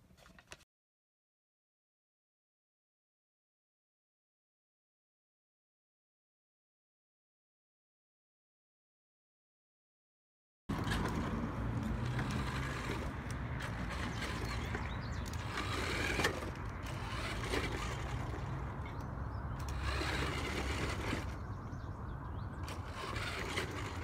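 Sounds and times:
toy truck motor whirring: 0:10.7 - 0:19.0, 0:19.6 - 0:21.4, 0:22.6 - 0:24.0.

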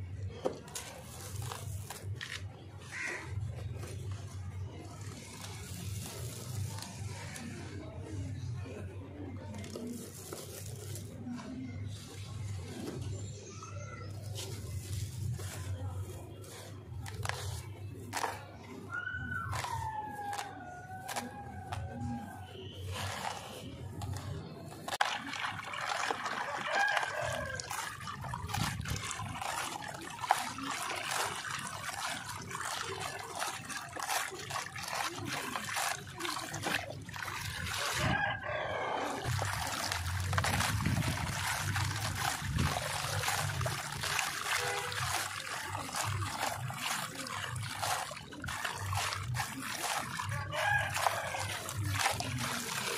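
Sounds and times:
sandy powder pouring: 0:00.6 - 0:02.4, 0:03.8 - 0:07.6, 0:09.4 - 0:11.5, 0:14.2 - 0:52.9
gritty grains pattering into tub: 0:14.4 - 0:52.9.

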